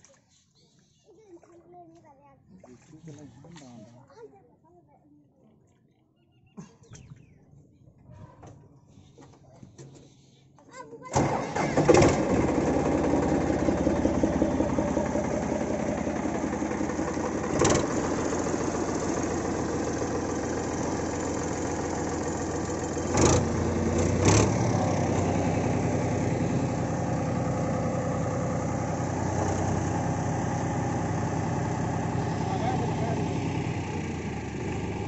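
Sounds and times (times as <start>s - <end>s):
tractor diesel engine idling: 11.2s - 35.0s.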